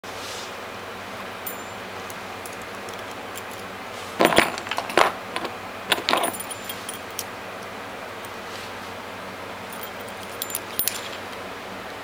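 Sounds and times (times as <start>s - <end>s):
small metal pieces clinking: 2.4s - 7.3s, 9.7s - 11.3s.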